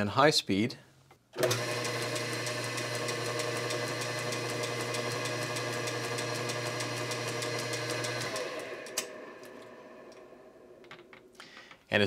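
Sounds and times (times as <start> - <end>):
lathe motor humming: 1.4 - 10.9.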